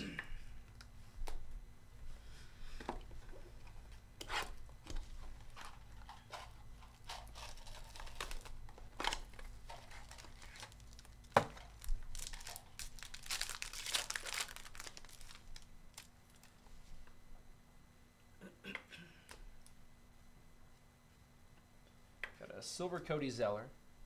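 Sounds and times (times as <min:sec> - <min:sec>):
foil pack crinkling and tearing: 0:07.0 - 0:16.6.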